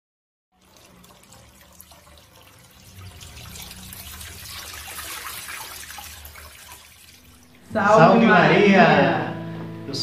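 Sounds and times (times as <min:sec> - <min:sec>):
water pouring onto a dish: 0:00.6 - 0:07.6.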